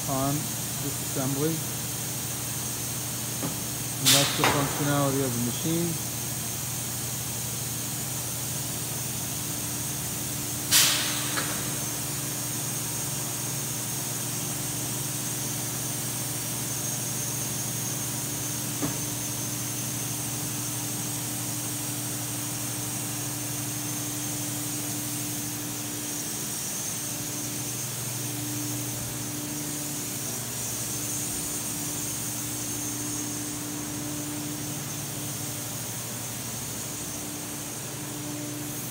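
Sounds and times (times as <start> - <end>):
industrial machinery humming: 0.0 - 38.9
sharp knock: 4.2 - 4.9.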